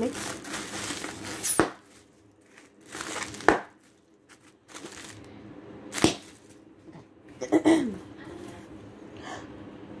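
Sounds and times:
wrapping paper rustling: 0.0s - 6.7s.

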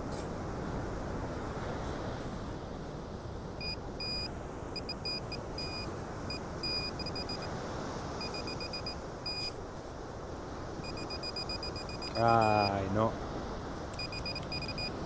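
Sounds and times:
low rush of noise: 0.0s - 15.0s
metal detector beeps: 3.6s - 7.5s, 8.2s - 9.6s, 10.8s - 12.8s, 14.0s - 15.0s.

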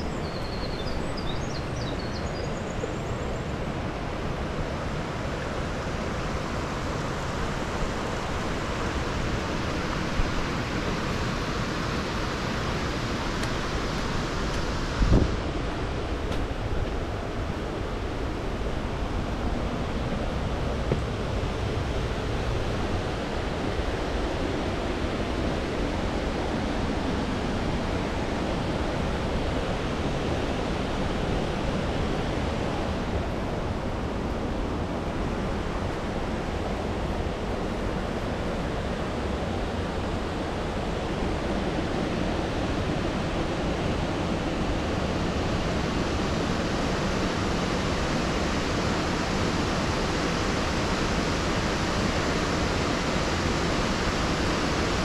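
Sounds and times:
waterfall rushing: 4.0s - 34.1s.

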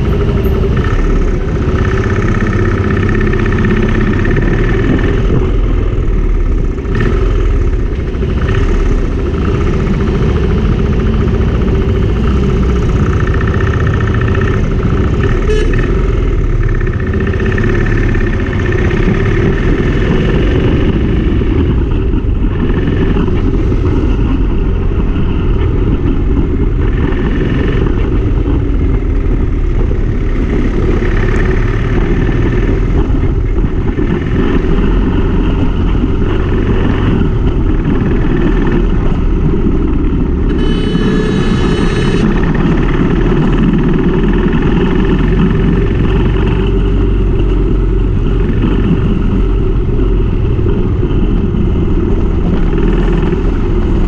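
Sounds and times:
motorcycle engine running: 0.0s - 54.0s
surrounding traffic: 0.0s - 54.0s
wind rush on microphone: 0.0s - 54.0s
brief high-pitched tone: 40.5s - 42.3s.

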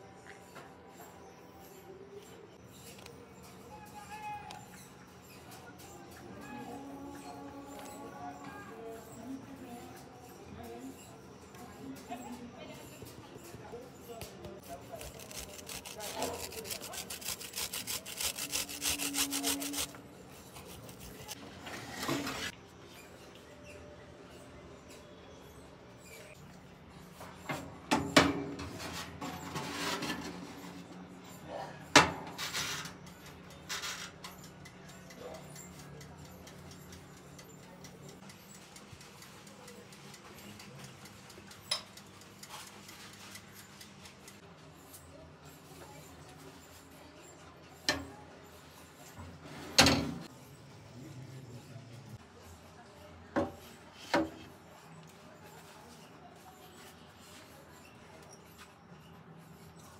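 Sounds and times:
cheese scraping on metal grater: 12.9s - 22.5s
mechanical timer ticking: 34.4s - 44.4s.

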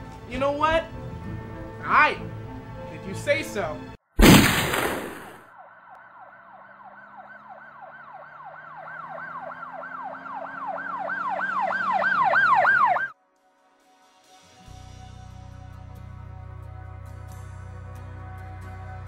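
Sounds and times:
emergency siren yelping: 5.4s - 13.2s.

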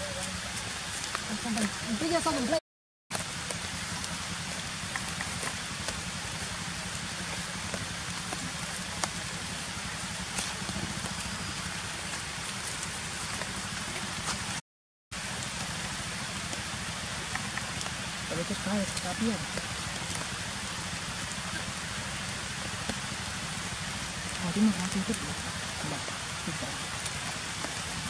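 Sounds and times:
steady hiss: 15.2s - 28.0s.

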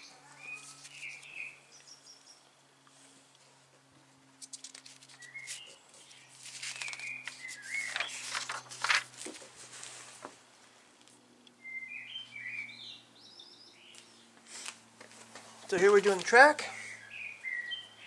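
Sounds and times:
bird chirping: 0.0s - 2.5s, 5.2s - 8.2s, 11.6s - 14.4s, 15.7s - 18.0s
paper booklet rustling: 4.4s - 10.4s, 14.5s - 16.6s.

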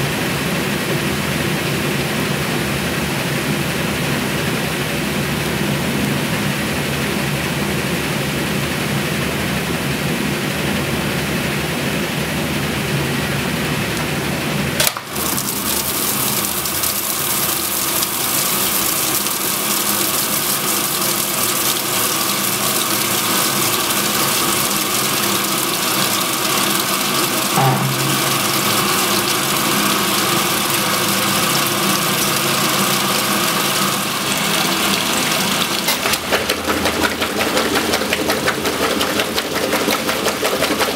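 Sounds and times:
washing machine motor humming: 13.8s - 40.9s.

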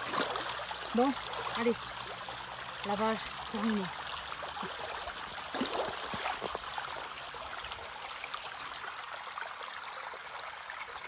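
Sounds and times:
feet splashing through water: 0.0s - 1.8s, 4.5s - 7.2s
stream trickling over stones: 0.0s - 11.0s.

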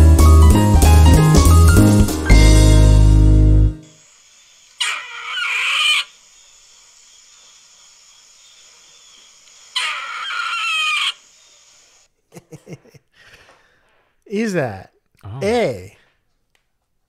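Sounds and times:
faint crickets: 3.8s - 12.1s
squirrel rasping calls: 4.8s - 6.2s, 9.1s - 11.8s.

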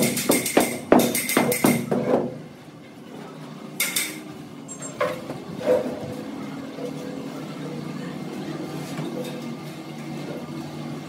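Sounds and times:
tools knocking: 0.0s - 2.3s, 3.8s - 4.2s.

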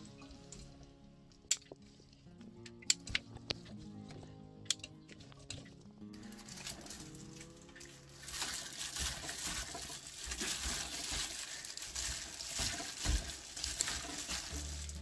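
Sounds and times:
plastic glove crinkling: 6.2s - 15.0s.

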